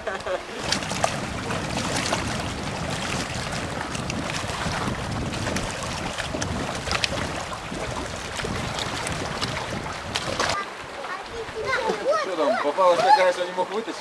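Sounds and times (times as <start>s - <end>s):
wind blowing on microphone: 0.0s - 10.6s
small waves lapping at shore: 0.0s - 14.0s.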